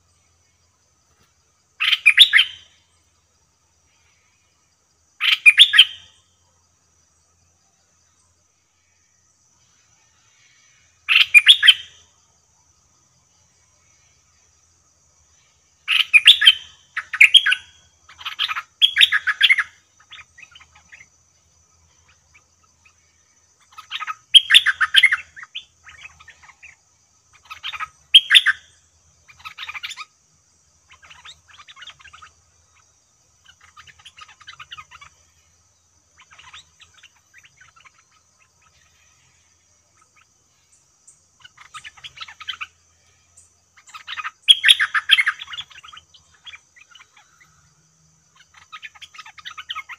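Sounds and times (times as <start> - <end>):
bird bubbly chirps: 43.8 - 47.4, 48.4 - 49.9.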